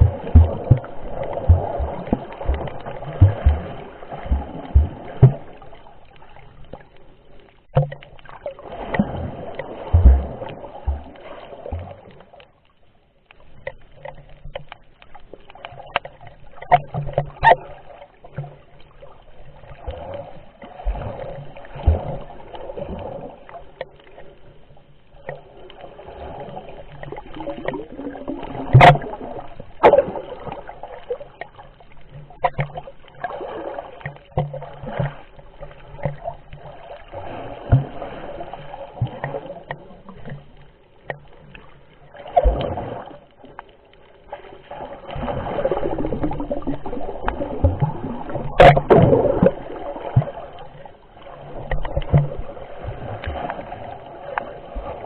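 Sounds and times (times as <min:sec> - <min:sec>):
muffled underwater sloshing: 0:00.0 - 0:55.0.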